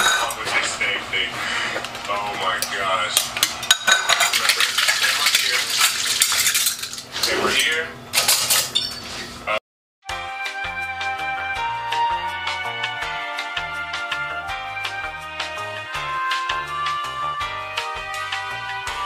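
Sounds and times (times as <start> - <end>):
cutlery clinking against dishes: 0.0 - 0.5, 3.2 - 9.1
tap water running: 3.3 - 7.1.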